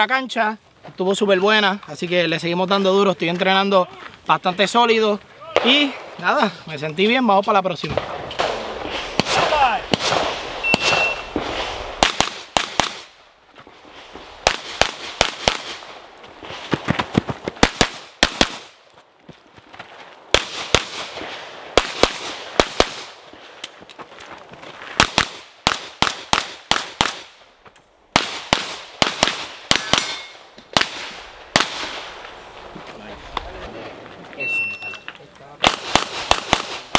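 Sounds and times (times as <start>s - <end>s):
rapid pistol shots: 8.0s - 13.1s, 14.4s - 15.9s, 17.6s - 18.7s, 21.8s - 23.2s, 25.0s - 27.4s, 28.1s - 32.1s, 35.6s - 36.9s.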